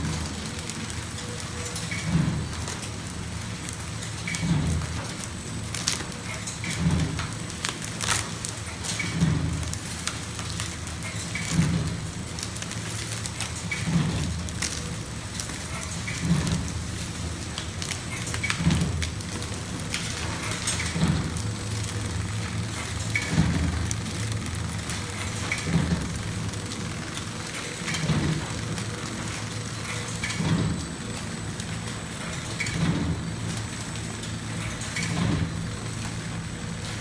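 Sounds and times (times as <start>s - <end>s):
flow-wrapping machine running: 0.0s - 37.0s.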